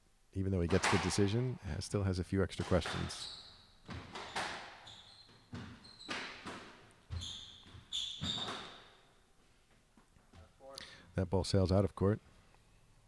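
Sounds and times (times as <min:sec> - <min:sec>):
squash ball hits echoing: 0:02.5 - 0:03.2
shoes squeaking on wooden floor: 0:02.6 - 0:10.6.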